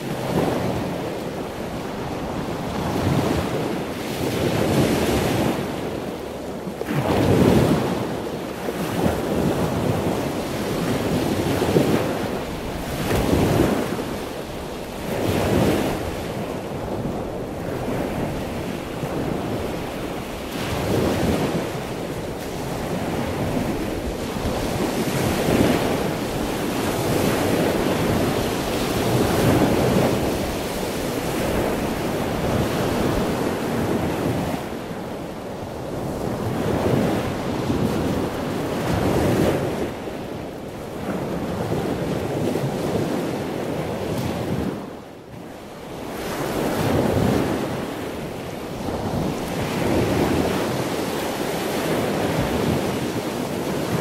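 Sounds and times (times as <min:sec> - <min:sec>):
wind buffeting microphone: 0:00.0 - 0:45.0, 0:45.7 - 0:54.0
waves breaking on shore: 0:00.0 - 0:54.0.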